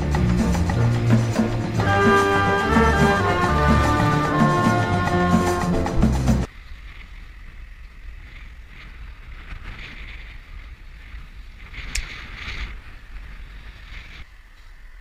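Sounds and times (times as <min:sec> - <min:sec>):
rolling road noise: 0:00.0 - 0:15.0
wind rumbling on microphone: 0:05.9 - 0:15.0.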